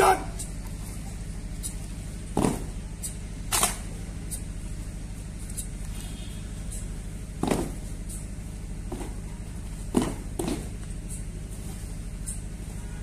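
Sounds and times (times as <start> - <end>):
steady low hum: 0.0 - 13.0
boots stamping in unison: 2.3 - 2.8, 7.3 - 8.0, 8.8 - 11.0.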